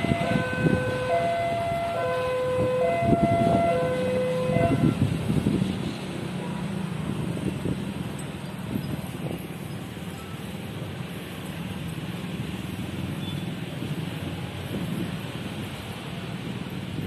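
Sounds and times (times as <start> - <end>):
level-crossing two-tone alarm: 0.0 - 5.0
diesel locomotive rumbling: 0.0 - 17.0
road traffic: 0.0 - 17.0.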